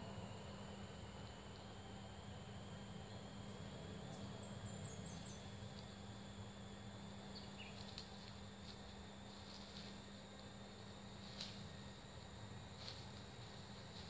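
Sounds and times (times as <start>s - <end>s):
insects calling: 4.0s - 6.2s, 7.1s - 8.8s.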